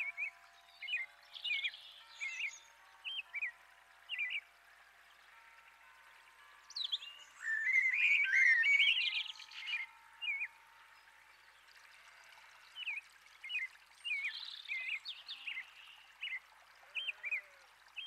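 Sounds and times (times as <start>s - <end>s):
bird chirps: 0.0s - 4.5s, 6.6s - 10.6s, 12.8s - 18.0s
songbirds warbling: 0.0s - 18.0s.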